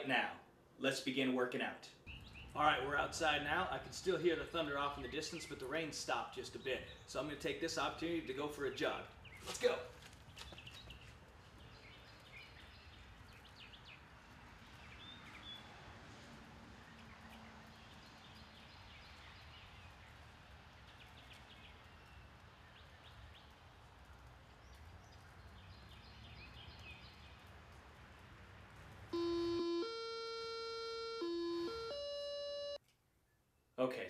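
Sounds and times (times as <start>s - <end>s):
birds chirping: 2.0s - 15.7s, 16.8s - 27.7s.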